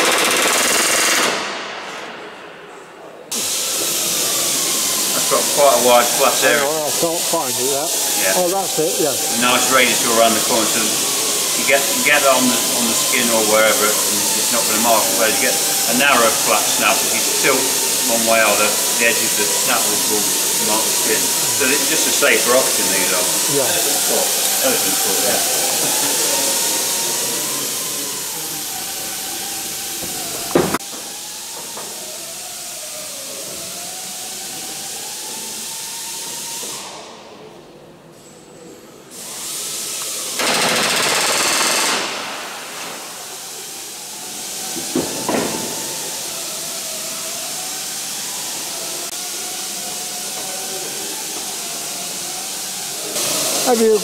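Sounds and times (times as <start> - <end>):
rivet gun rapid hammering: 0.0 - 1.6, 40.4 - 42.2
air hiss: 3.3 - 37.2, 39.1 - 54.0.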